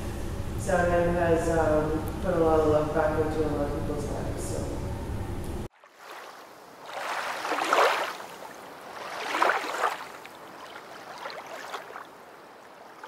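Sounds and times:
water washing in swells: 5.7 - 13.0.

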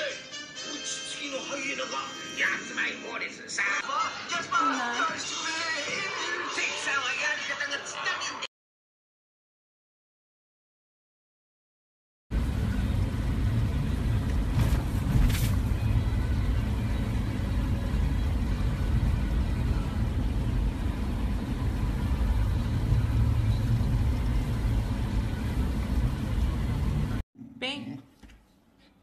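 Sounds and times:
car cabin road rumble: 12.3 - 27.2.

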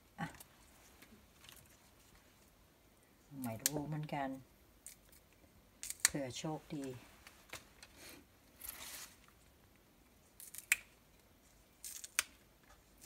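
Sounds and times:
plant stems snapping: 5.8 - 6.2, 10.4 - 11.0, 11.8 - 12.4.

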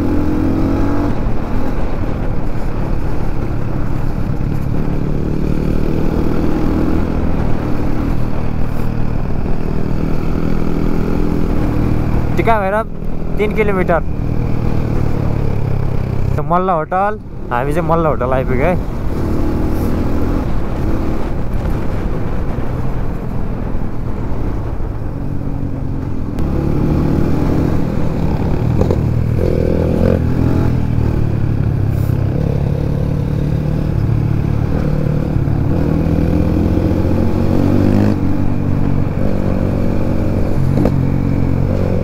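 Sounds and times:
dirt bike engine revving: 0.0 - 1.2, 18.6 - 21.3, 26.4 - 42.0.

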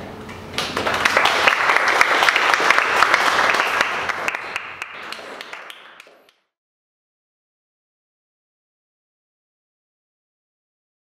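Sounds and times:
audience applauding: 0.6 - 6.4.

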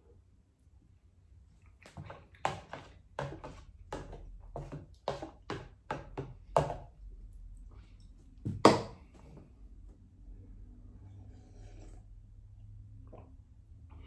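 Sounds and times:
metal spoon knocking in plastic container: 2.4 - 6.9.

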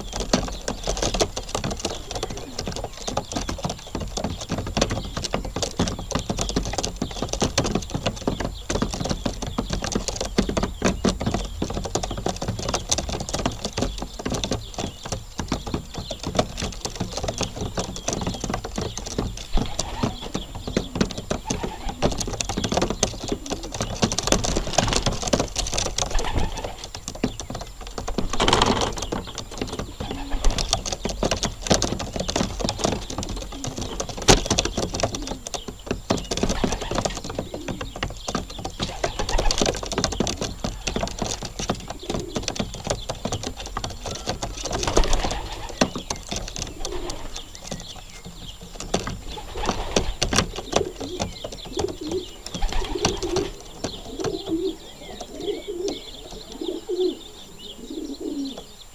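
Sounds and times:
pigeons cooing: 0.0 - 58.9
pigeons pecking floor: 0.0 - 58.9.

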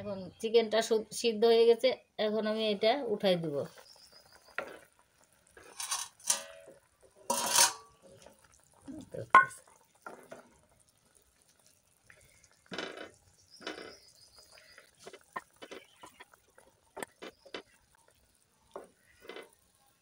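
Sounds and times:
water splashes and drips: 7.9 - 20.0
light knocks on metal bowl: 9.4 - 9.6.

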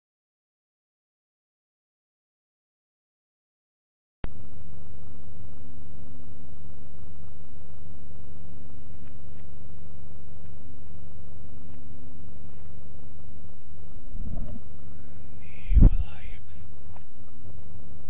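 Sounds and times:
low hum with hiss: 4.2 - 18.0.

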